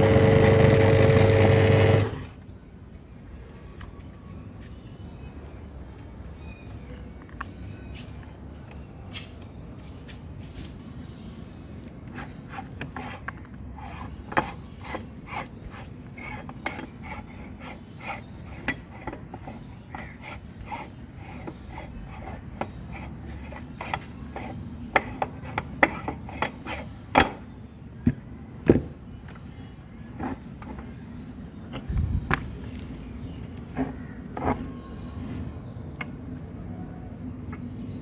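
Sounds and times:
meat grinder scraping: 0.0 - 2.2.

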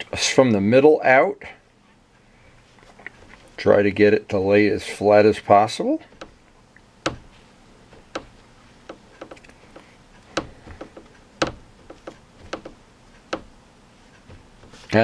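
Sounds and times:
fingertip tapping on plastic: 6.1 - 6.4, 7.0 - 13.6.

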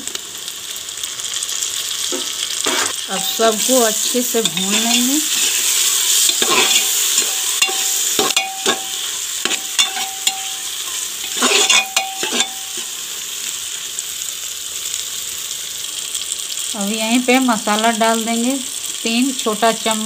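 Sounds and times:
masala sizzling in oil: 0.0 - 20.0
metal ladle scraping pot: 2.6 - 3.6, 4.4 - 13.0.

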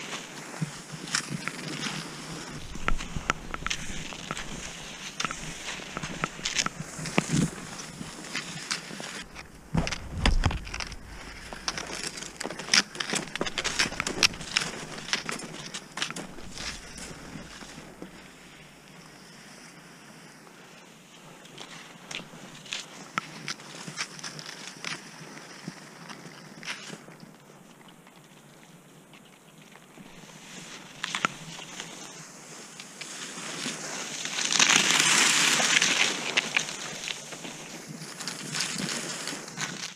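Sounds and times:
skis sliding on snow: 0.0 - 27.5, 29.8 - 39.9
ski poles planting in snow: 0.0 - 39.9
heavy low thumps: 9.3 - 11.7.

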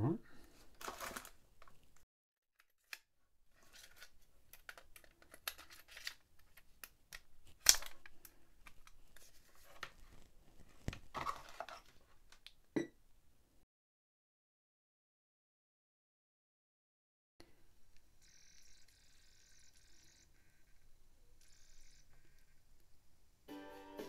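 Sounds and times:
plastic clicks and scrapes: 2.6 - 12.5.

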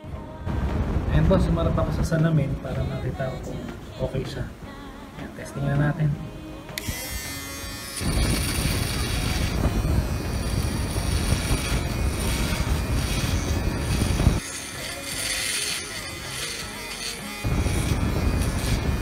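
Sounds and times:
electric shaver buzzing: 6.7 - 19.0.

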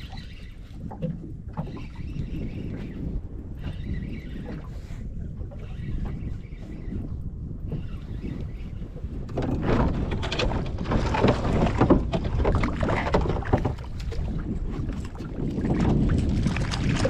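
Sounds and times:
low wind rumble on microphone: 0.0 - 17.0
knocks around boat: 9.3 - 14.2
water splashing: 10.9 - 17.0.

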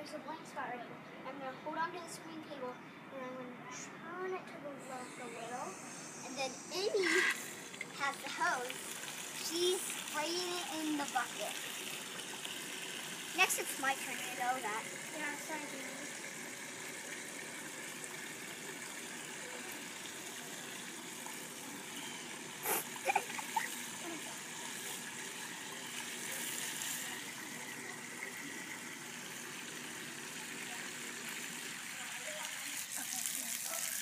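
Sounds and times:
water trickling into plastic bucket: 7.3 - 34.0.

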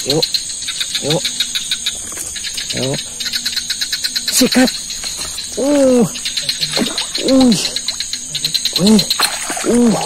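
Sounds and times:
night insects chorus: 0.0 - 10.0
hooting calls: 2.5 - 10.0.

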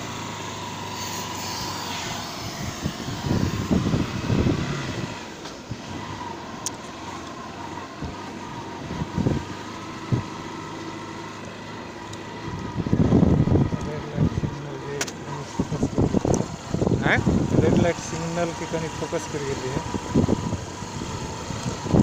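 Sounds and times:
moving vehicle running noise: 0.0 - 22.0
low rumbling gusts: 2.4 - 6.3, 12.4 - 22.0.

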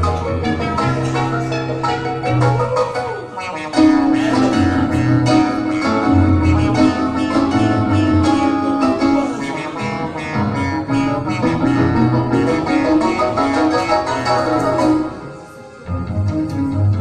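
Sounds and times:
moving bass line: 0.0 - 15.1, 15.9 - 17.0
plucked strings music: 0.0 - 17.0.

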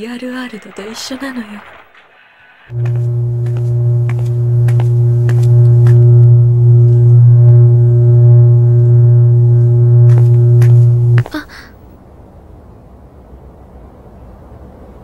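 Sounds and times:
power lines humming: 1.6 - 11.3.

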